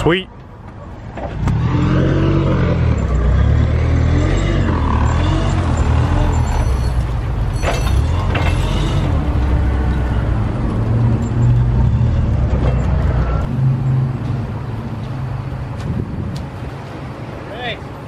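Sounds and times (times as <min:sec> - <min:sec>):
metal clanks: 0:04.2 - 0:13.2.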